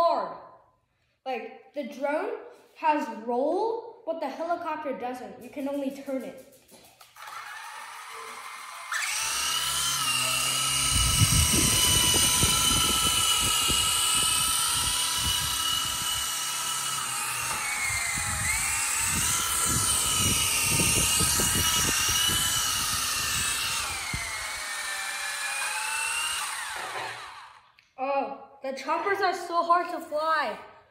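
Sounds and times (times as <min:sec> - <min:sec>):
toy helicopter motor whine: 0:06.8 - 0:27.7.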